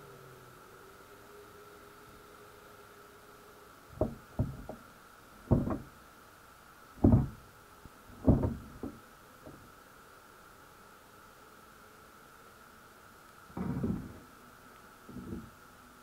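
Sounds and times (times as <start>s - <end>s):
faint steady whine: 0.0s - 16.0s
dull underwater knocks: 4.0s - 4.8s, 5.5s - 5.9s, 7.0s - 7.4s, 8.1s - 9.6s.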